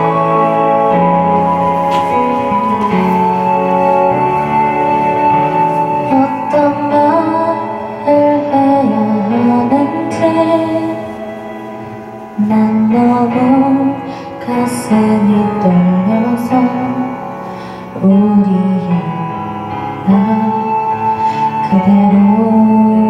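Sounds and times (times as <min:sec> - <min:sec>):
karaoke backing track: 0:00.0 - 0:23.0
woman singing into microphone: 0:05.6 - 0:23.0.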